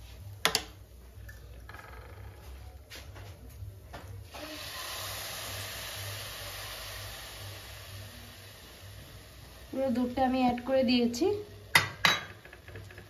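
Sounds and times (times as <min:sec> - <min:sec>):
milk sizzling in hot pan: 0:04.2 - 0:13.0.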